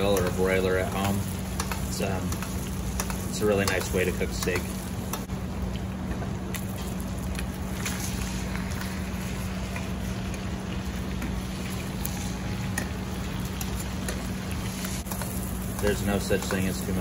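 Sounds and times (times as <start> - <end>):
steak sizzling in a pan: 0.0 - 5.3, 6.6 - 17.0
metal tongs clicking on pan: 0.1 - 5.3.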